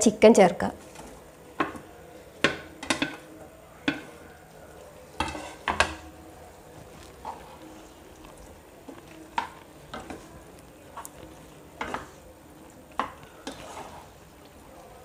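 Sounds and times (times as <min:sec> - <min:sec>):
low sizzle of frying: 0:00.0 - 0:15.0
spatula scraping and knocking pan: 0:00.8 - 0:04.2, 0:05.1 - 0:06.2, 0:08.8 - 0:10.4, 0:11.0 - 0:12.2, 0:12.9 - 0:14.2.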